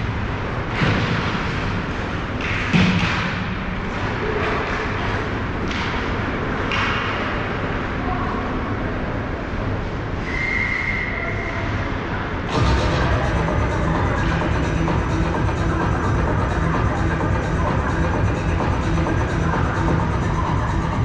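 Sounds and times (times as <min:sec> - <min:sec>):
steady low rumble: 0:11.8 - 0:21.0.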